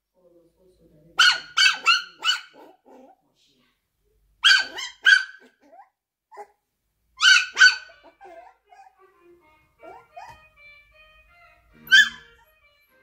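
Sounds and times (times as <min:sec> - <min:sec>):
puppy yapping: 0:01.2 - 0:03.2, 0:04.4 - 0:06.6, 0:07.2 - 0:08.9, 0:09.8 - 0:10.5, 0:11.9 - 0:12.4.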